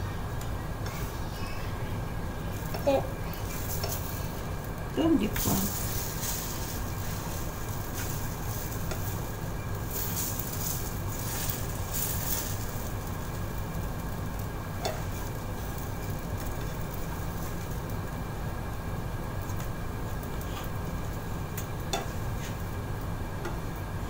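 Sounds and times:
steady low hum: 0.0s - 24.0s
pancakes sizzling in a frying pan: 0.8s - 24.0s
fork clicking against pan: 14.8s - 15.1s.

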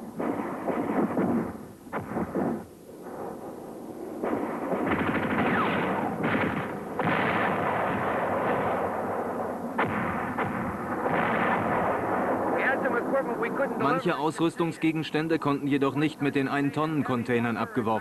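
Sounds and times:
rapid gunfire crackle: 0.0s - 13.8s.

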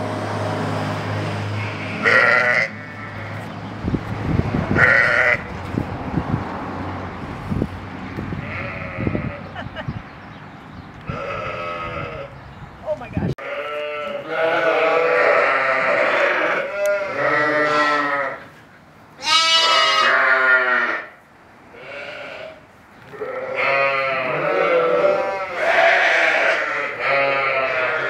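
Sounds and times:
lambs bleating: 1.6s - 3.4s, 4.8s - 5.4s, 8.4s - 9.5s, 11.1s - 12.3s, 13.4s - 18.5s, 19.2s - 21.1s, 21.7s - 28.0s.

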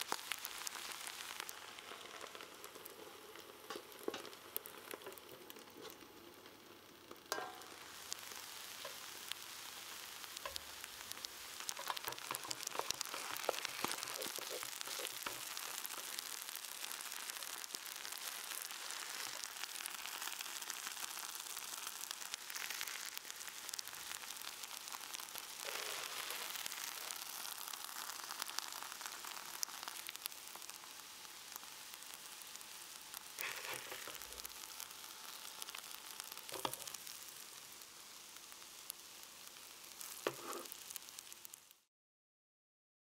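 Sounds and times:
rice sizzling on hot plate: 0.0s - 41.9s
wooden spatula scraping plate: 11.8s - 15.6s, 40.3s - 40.7s.

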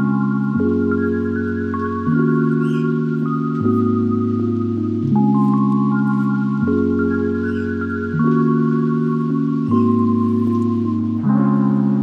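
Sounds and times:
soft ambient music: 0.0s - 12.0s.

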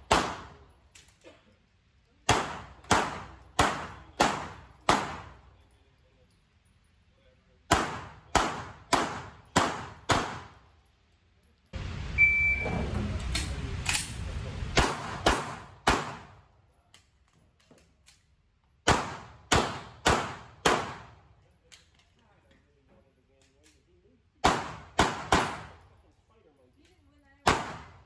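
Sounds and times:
pistol shots echoing indoors: 0.0s - 0.6s, 2.2s - 5.5s, 7.6s - 10.6s, 14.8s - 16.5s, 18.8s - 21.2s, 24.4s - 26.0s, 27.4s - 28.0s
short shot-timer beep: 12.2s - 12.8s.

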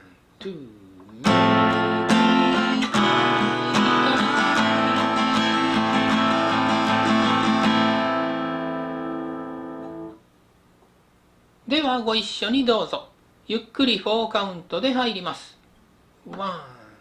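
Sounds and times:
acoustic guitar strumming: 1.2s - 10.2s.

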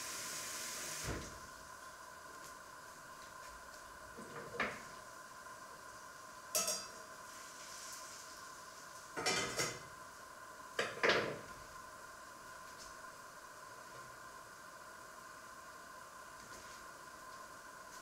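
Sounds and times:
faint steady hum: 0.0s - 18.0s
metal utensils clattering on pots: 6.6s - 7.0s.

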